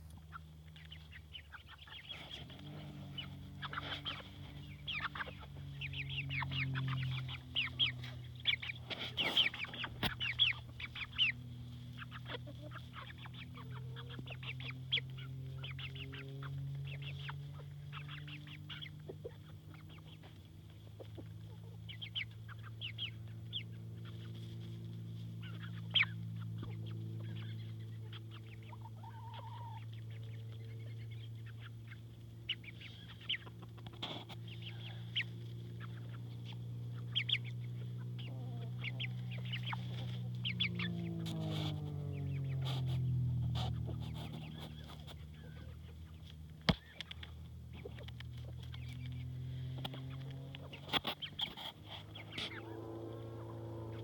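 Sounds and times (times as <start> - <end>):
low steady hum: 0.0 - 54.0
fowl clucking: 0.1 - 24.6, 25.4 - 47.2, 47.8 - 54.0
high chirping calls: 0.3 - 20.3.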